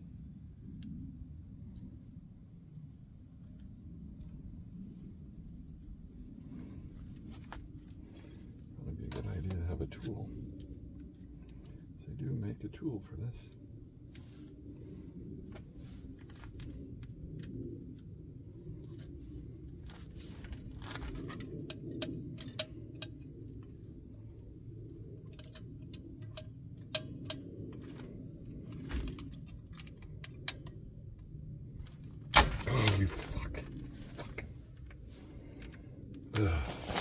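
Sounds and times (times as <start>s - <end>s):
low steady hum: 0.0s - 37.0s
light metallic clicks and clinks: 21.2s - 23.4s.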